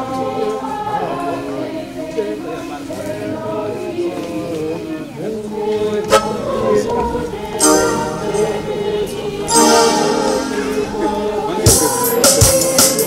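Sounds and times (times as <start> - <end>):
choir singing a hymn: 0.0 - 13.0
electronic keyboard: 6.2 - 13.0
bright hissy percussion: 7.5 - 13.0.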